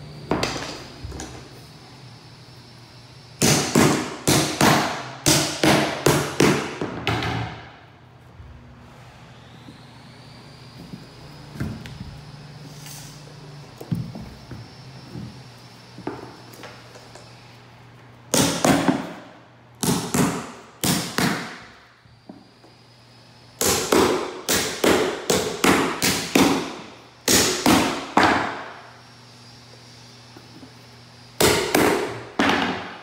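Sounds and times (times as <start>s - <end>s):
hammer blows on nails: 3.4s - 7.7s, 18.3s - 19.2s, 23.6s - 28.8s, 31.4s - 33.0s.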